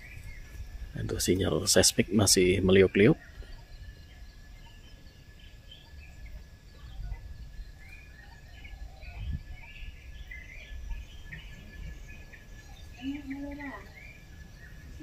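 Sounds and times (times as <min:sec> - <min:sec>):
birds chirping: 0:00.0 - 0:15.0
thin steady high tone: 0:00.0 - 0:15.0.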